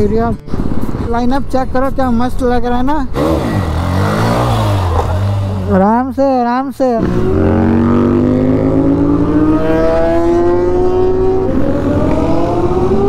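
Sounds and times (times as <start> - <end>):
motorcycle engine accelerating: 3.1 - 6.1, 7.0 - 13.0.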